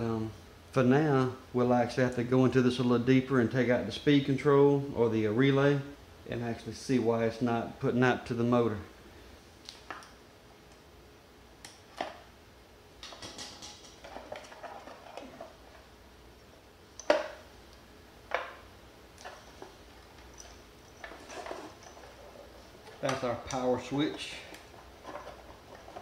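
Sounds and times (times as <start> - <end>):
wires rustling: 13.0 - 26.0.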